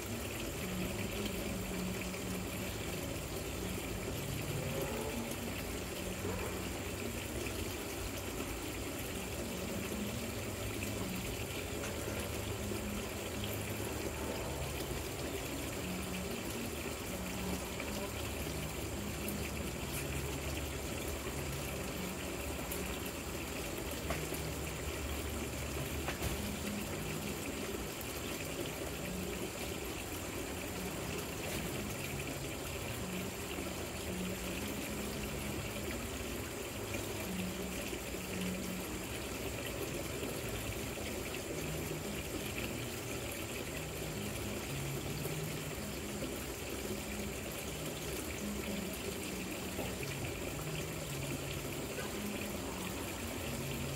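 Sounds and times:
fountain water trickling: 0.0s - 53.9s.

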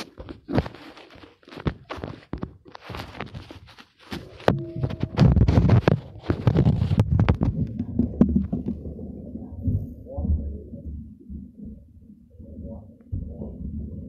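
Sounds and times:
phone microphone rubbing clothing: 0.0s - 8.8s
dense low rumble: 6.8s - 14.0s.

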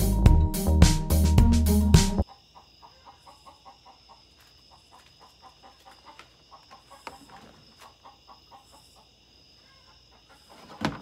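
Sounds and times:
insects or frogs chorus: 2.2s - 11.0s.

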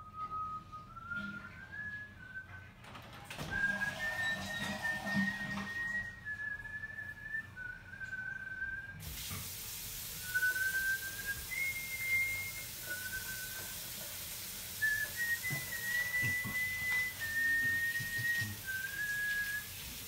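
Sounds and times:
person whistling a slow tune: 0.0s - 2.8s, 3.4s - 9.1s, 10.2s - 14.0s, 14.7s - 20.0s
tap running into sink: 3.3s - 6.1s, 9.0s - 20.0s.

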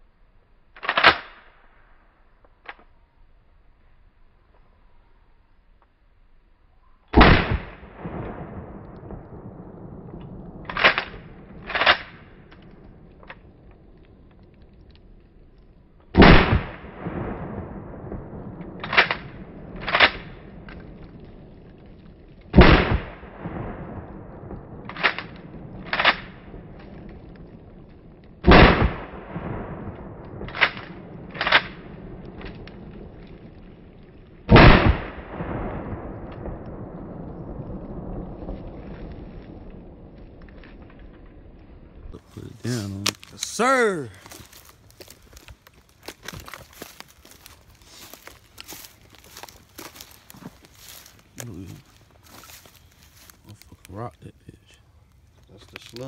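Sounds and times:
shotgun shots: 7.2s - 8.6s, 16.2s - 17.2s, 22.6s - 23.5s, 28.4s - 29.8s, 34.5s - 35.8s.

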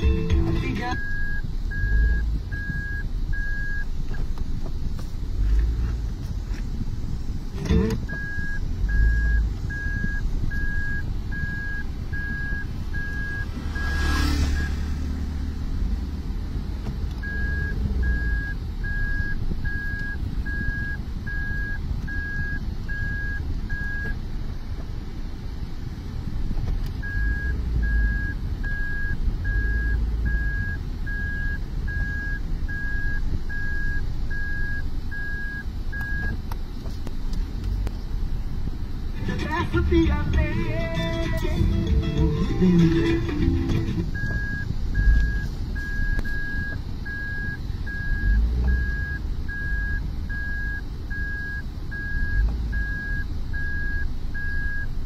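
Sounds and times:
reverse warning beeper: 0.0s - 3.9s, 7.6s - 15.2s, 17.2s - 24.2s, 27.0s - 36.4s, 40.7s - 55.0s
car engine rumble: 0.0s - 55.0s.

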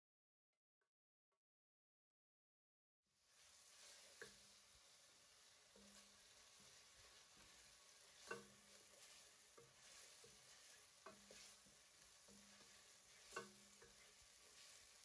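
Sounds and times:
food sizzling in a pan: 3.1s - 15.0s.

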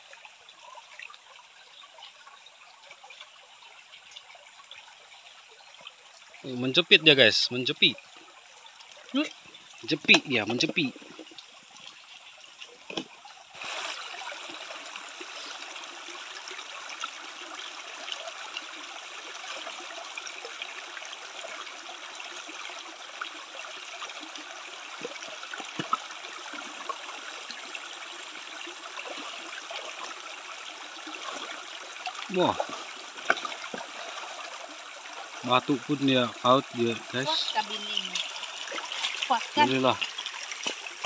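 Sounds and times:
stream running over rocks: 0.0s - 41.0s.

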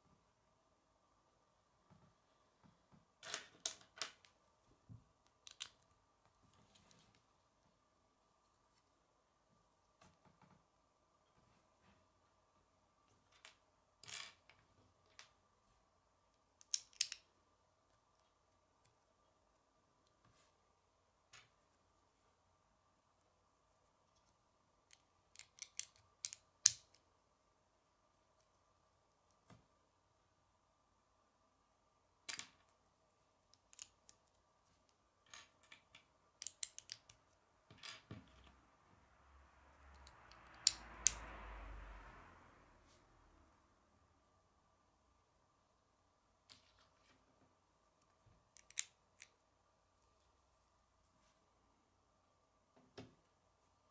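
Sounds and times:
plastic bricks clicking: 35.4s - 37.2s.

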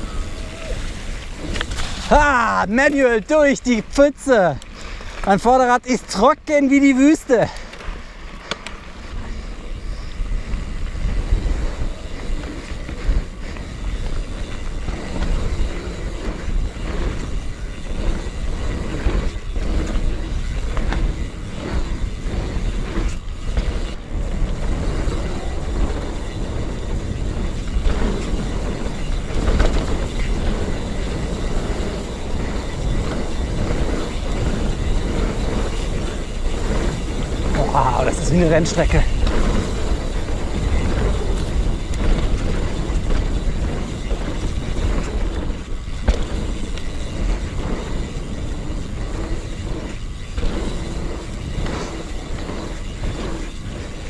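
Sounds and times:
bike rattles and knocks: 0.0s - 54.0s
tyres rumbling on dirt: 0.0s - 54.0s.

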